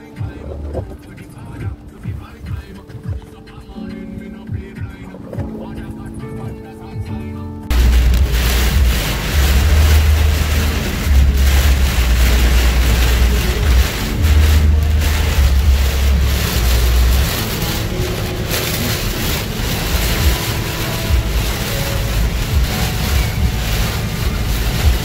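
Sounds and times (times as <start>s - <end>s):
wind buffeting the microphone: 0.0s - 25.0s
driving rain: 7.7s - 25.0s
storm-force wind: 7.7s - 25.0s.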